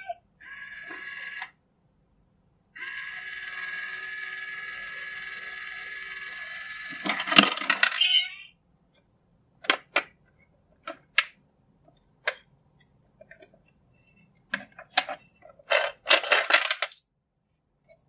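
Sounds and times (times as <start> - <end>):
small motor and gears whirring: 0.4 - 1.5, 2.8 - 7.5.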